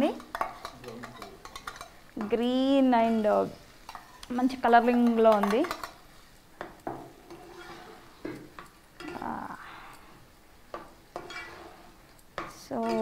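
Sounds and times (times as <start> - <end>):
light sizzle: 0.0 - 13.0
metal spatula scraping pot: 0.2 - 2.4, 3.0 - 6.0, 7.1 - 9.4, 11.1 - 12.0.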